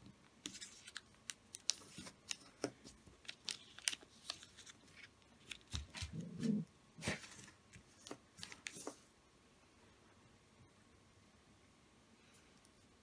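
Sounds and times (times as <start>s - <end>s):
paper folding crinkles: 0.4s - 9.1s.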